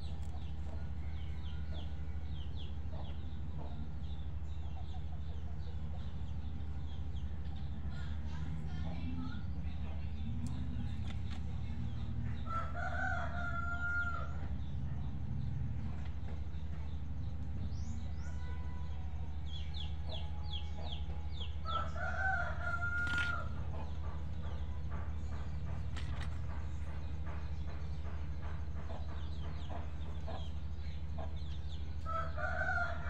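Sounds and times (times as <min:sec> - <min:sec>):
steady low hum: 0:00.0 - 0:33.0
rooster crowing: 0:12.4 - 0:14.4, 0:21.6 - 0:23.6, 0:32.0 - 0:33.0.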